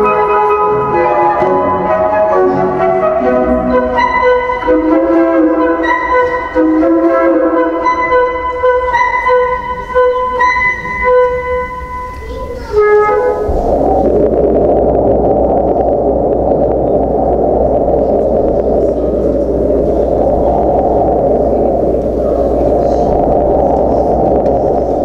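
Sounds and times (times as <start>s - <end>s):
flute-like melody: 0.0s - 14.9s
low hum: 0.0s - 25.0s
steady rushing noise: 0.0s - 25.0s.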